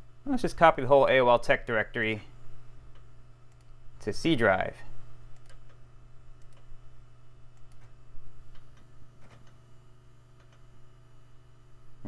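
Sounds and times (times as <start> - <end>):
steady low hum: 0.0 - 12.0
cd drive clicking and juddering: 7.6 - 9.7.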